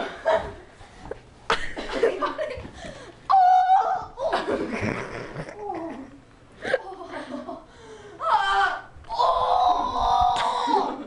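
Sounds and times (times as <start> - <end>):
person laughing: 4.2 - 7.6.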